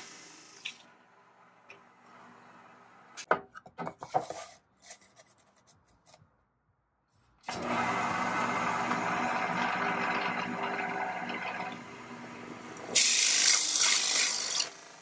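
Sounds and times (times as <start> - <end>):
knocks and scrapes on wooden table: 3.3 - 4.4
drill press boring into wood: 7.5 - 15.0.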